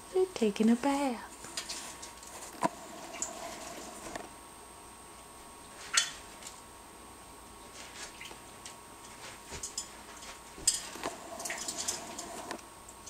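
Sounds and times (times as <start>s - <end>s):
parrot splashing in water dish: 1.5s - 4.1s, 10.7s - 12.6s.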